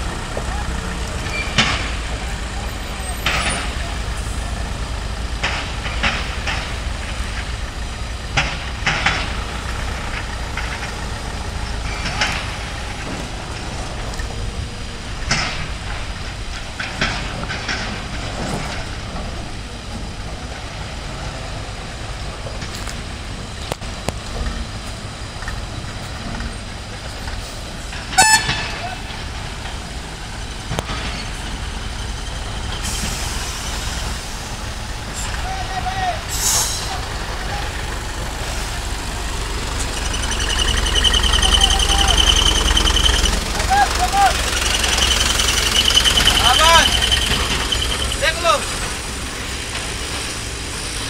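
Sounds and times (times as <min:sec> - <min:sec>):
diesel truck engine rumble: 0:00.0 - 0:51.0
brief air hisses: 0:36.3 - 0:37.0.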